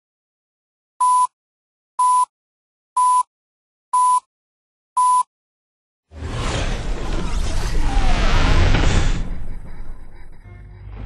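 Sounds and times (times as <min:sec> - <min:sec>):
short beeps: 0:02.0 - 0:02.3, 0:03.0 - 0:03.3, 0:04.0 - 0:04.3, 0:05.0 - 0:05.3.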